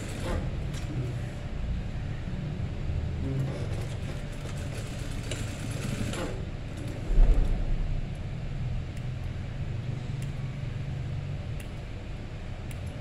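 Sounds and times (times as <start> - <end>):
low thump: 7.1 - 8.4.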